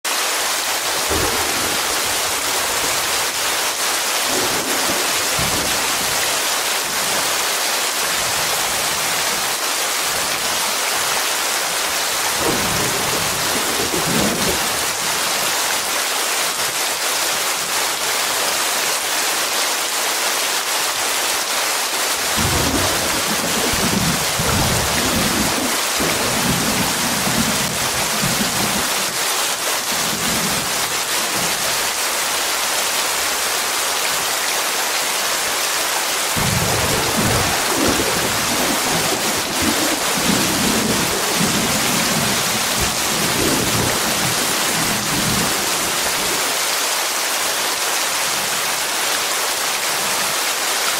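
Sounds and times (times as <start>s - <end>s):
rain hissing: 0.1s - 50.6s
thunder rumbling: 0.9s - 7.3s, 12.4s - 15.1s, 22.2s - 28.9s, 36.4s - 46.5s.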